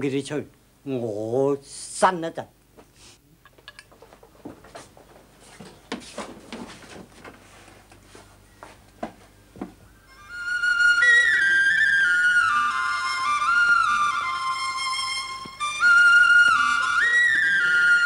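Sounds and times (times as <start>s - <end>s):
faint clicks and knocks: 3.4s - 8.1s
bamboo flute melody: 9.9s - 18.0s.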